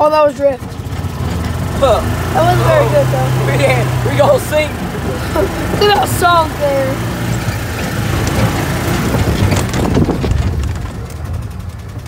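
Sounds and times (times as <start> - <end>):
golf cart driving on grass: 0.0 - 12.0
wind buffeting microphone: 4.6 - 12.0.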